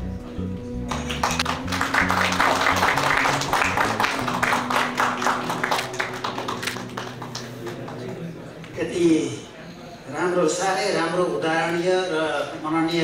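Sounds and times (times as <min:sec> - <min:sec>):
quiet background music: 0:00.0 - 0:12.4
audience applause: 0:00.9 - 0:08.5.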